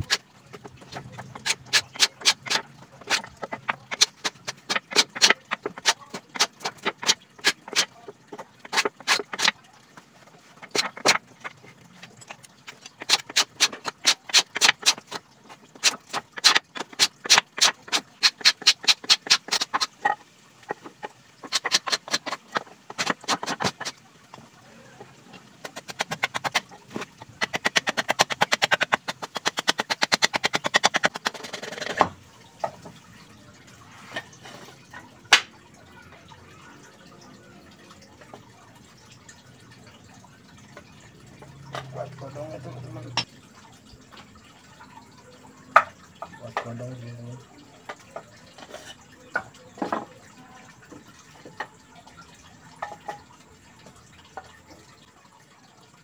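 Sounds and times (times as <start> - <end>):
hand tool chopping wood: 0.0 - 9.5, 10.6 - 11.2, 13.0 - 15.2, 15.8 - 20.2, 20.8 - 24.0, 25.6 - 32.1.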